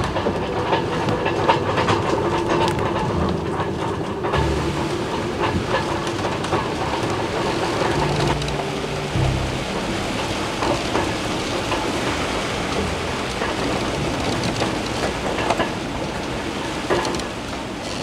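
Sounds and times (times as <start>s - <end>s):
rigging knocking and rattling: 0.0s - 8.6s
halyards banging on mast: 0.0s - 18.0s
rush of wind and sea: 0.0s - 18.0s.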